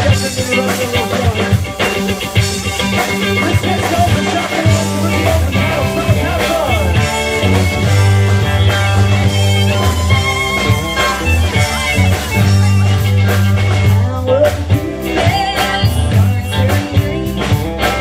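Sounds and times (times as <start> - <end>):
drum kit: 0.0 - 18.0
guitars: 0.0 - 18.0
sliding guitar lead line: 0.0 - 18.0.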